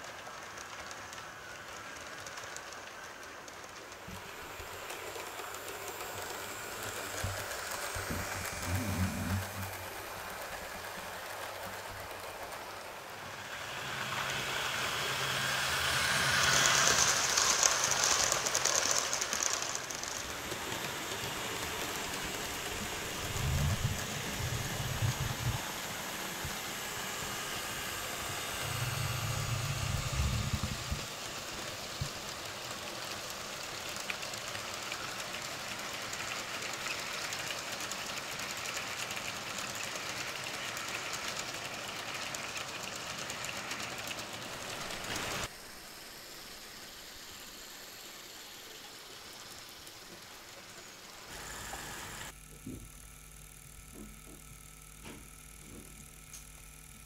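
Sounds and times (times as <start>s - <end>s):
model train rattling on track: 0.0s - 45.8s
deep motor hum: 7.9s - 9.9s.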